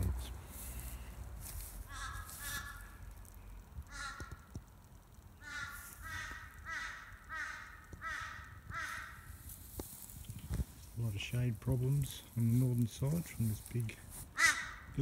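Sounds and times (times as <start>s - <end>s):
bird calling: 1.8s - 3.1s, 5.4s - 9.4s, 14.3s - 15.0s.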